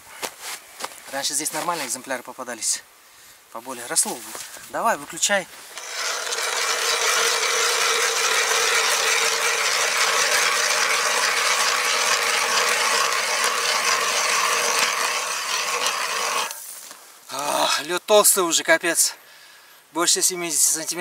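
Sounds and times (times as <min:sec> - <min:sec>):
ice auger scraping through ice: 0:05.7 - 0:16.8.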